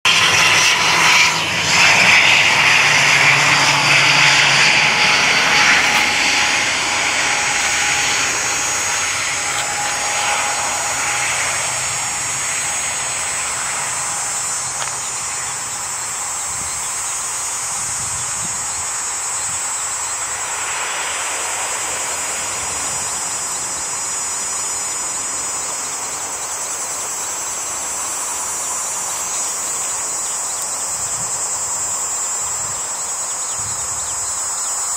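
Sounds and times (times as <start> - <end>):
turboprop airliner landing: 0.0 - 34.9
high insect buzz: 0.2 - 34.9.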